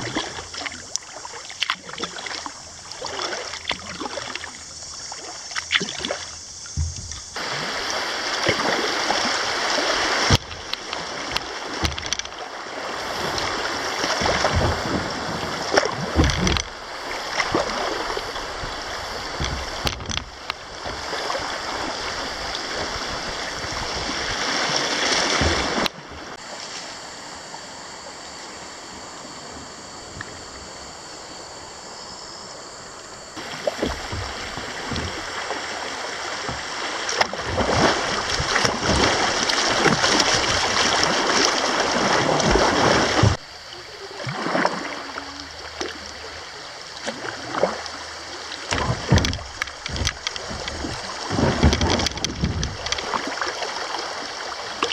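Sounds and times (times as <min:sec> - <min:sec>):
short splashes: 0:00.0 - 0:27.0, 0:33.4 - 0:54.9
river water rushing: 0:00.0 - 0:29.8, 0:33.4 - 0:54.9
knocks on kayak: 0:06.7 - 0:07.4, 0:10.1 - 0:10.7, 0:14.2 - 0:16.8, 0:18.5 - 0:21.0, 0:33.4 - 0:35.6, 0:48.7 - 0:53.2.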